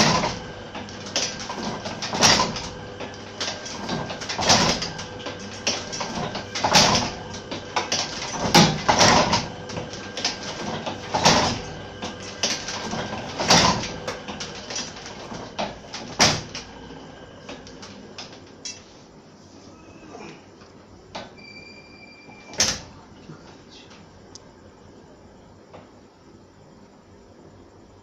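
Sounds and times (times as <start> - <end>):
printing press platen clacking: 0.0 - 16.8, 22.4 - 22.9.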